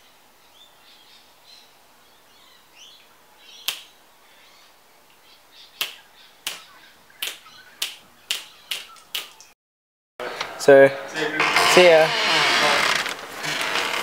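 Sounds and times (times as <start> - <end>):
finger snaps: 3.6 - 3.9, 5.8 - 6.6, 7.2 - 9.5.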